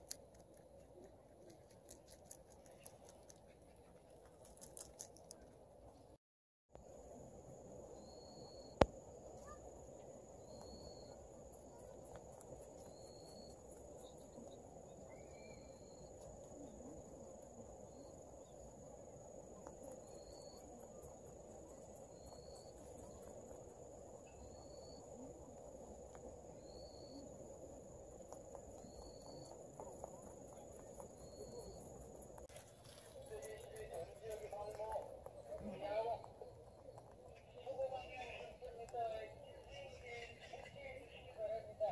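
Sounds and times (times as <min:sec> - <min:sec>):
insect chirps: 0:06.8 - 0:38.7
insects buzzing: 0:07.9 - 0:38.0.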